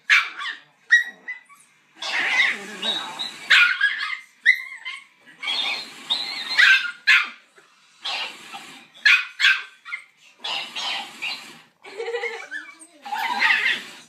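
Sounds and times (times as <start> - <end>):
puppy yapping: 0.1 - 7.4, 8.0 - 11.4.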